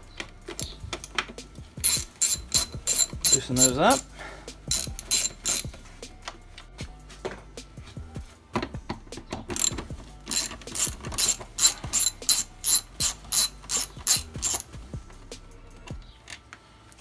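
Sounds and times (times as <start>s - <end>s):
ratchet pawl clicking: 1.8s - 4.1s, 4.7s - 5.7s, 9.6s - 14.7s.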